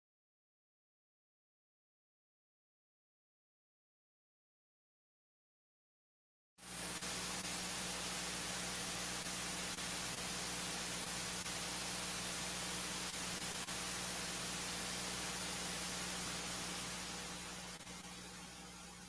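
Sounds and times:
electronic hiss with low hum: 6.6 - 19.0.

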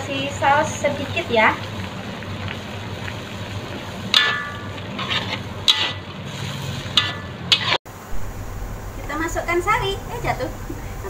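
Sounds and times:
sauce simmering hiss: 0.0 - 11.0
spatula clanking against pan: 4.1 - 6.0
metal spatula scraping a wok: 4.1 - 7.8.

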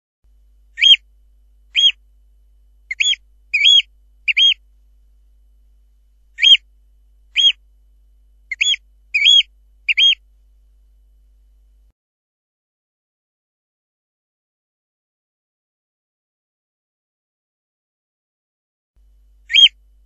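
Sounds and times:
oystercatcher short high calls: 0.8 - 1.0, 1.7 - 2.0, 2.9 - 4.6, 6.4 - 6.6, 7.3 - 7.6, 8.5 - 10.2, 19.5 - 19.8.

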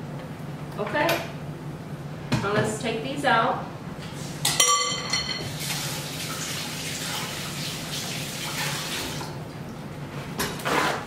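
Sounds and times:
kitchen tap running: 5.4 - 9.4.

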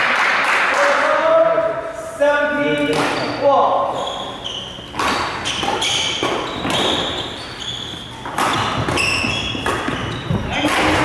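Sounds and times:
sneakers squeaking on court floor: 2.7 - 11.0
racket hitting shuttlecock: 2.8 - 3.3, 4.8 - 7.4, 8.0 - 11.0.

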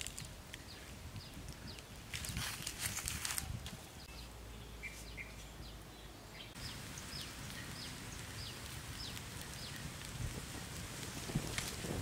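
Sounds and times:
brief crackle: 0.0 - 3.8, 7.2 - 12.0
background hiss: 3.8 - 12.0
bird chirping: 3.9 - 10.0.

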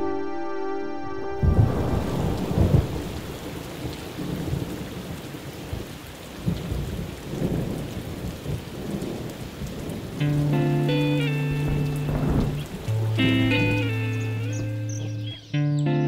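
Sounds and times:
thunder rumbling low: 1.4 - 14.0
rain falling on puddles: 1.4 - 16.0.

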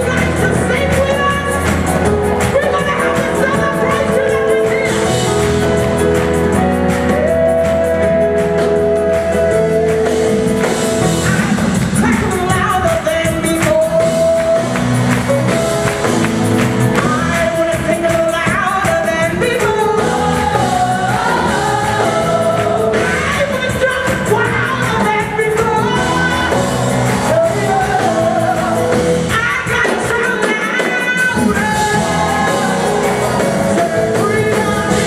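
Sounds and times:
woman singing lead: 0.0 - 15.9, 16.5 - 35.0
band with drums bass and keyboards: 0.0 - 35.0
backing singers: 19.2 - 25.0, 25.6 - 35.0.

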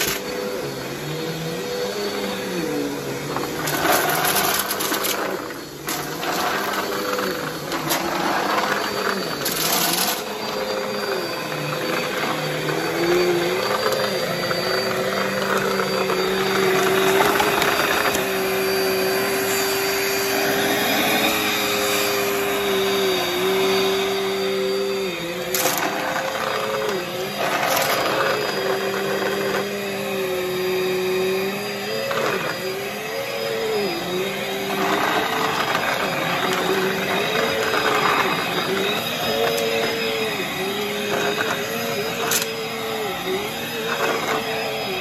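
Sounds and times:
vacuum cleaner motor hum: 0.0 - 45.0
debris rattling in vacuum: 3.1 - 23.7, 25.3 - 30.2.

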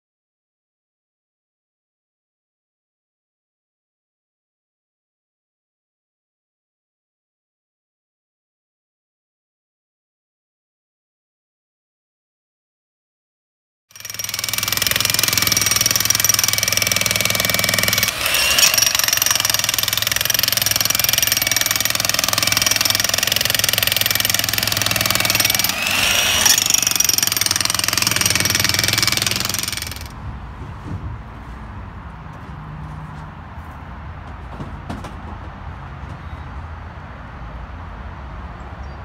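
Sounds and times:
jackhammer chiselling into ground: 13.9 - 30.2.

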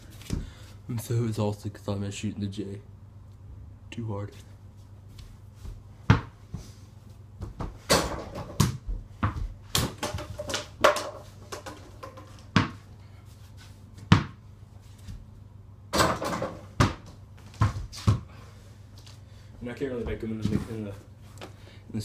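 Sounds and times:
ball knocking and bouncing: 7.4 - 12.8, 14.0 - 14.4, 15.9 - 18.3.

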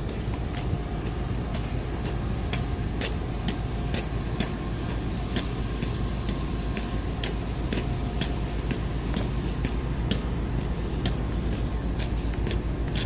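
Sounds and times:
footsteps on steel deck: 0.0 - 13.0
steady low rumble: 0.0 - 13.0.

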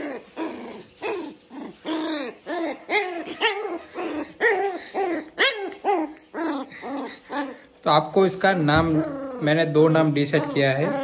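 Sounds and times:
puppy yipping: 0.0 - 7.7.

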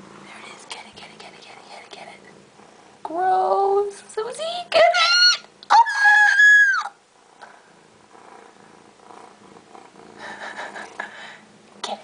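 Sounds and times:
cat purring: 0.0 - 4.2, 7.1 - 12.0.

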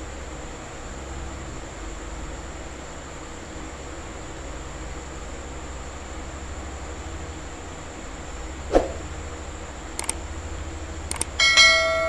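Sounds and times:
sharp clicks: 10.0 - 10.2, 11.1 - 11.4
bell-like chime: 11.4 - 12.0.

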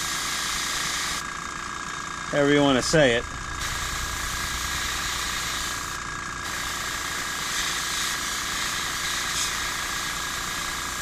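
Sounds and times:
air compressor humming: 0.0 - 11.0
hiss of air: 3.6 - 11.0.

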